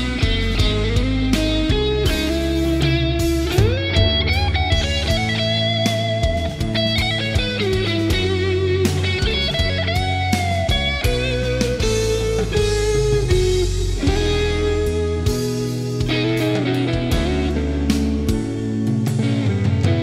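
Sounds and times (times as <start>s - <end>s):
bass guitar: 0.0s - 20.0s
drums: 0.0s - 20.0s
electric guitar solo: 0.0s - 20.0s.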